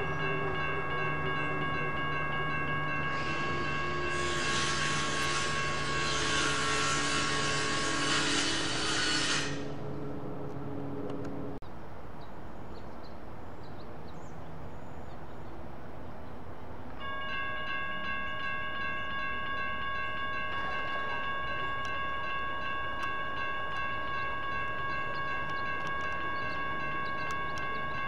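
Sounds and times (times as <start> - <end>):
railroad crossing bells ringing: 0.0 - 9.9, 17.0 - 28.0
outdoor background noise: 0.0 - 28.0.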